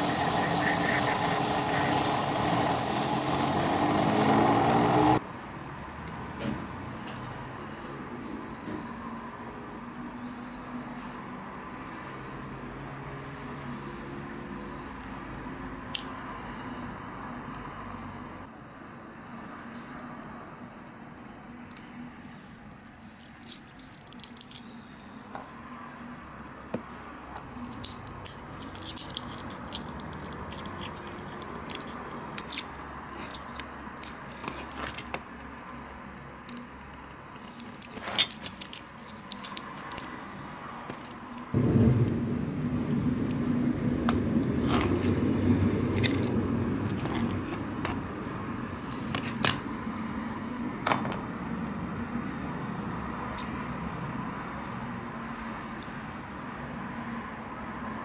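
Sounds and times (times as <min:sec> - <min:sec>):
resin crackling and snapping: 0:21.6 - 0:24.8, 0:27.4 - 0:35.8, 0:36.4 - 0:40.1
steady low rumble: 0:41.5 - 0:48.6.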